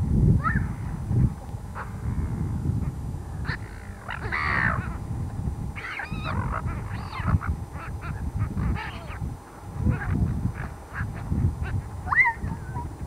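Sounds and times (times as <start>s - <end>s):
wind rumble on microphone: 0.0s - 13.0s
gulls squawking: 3.4s - 5.0s, 5.8s - 12.9s.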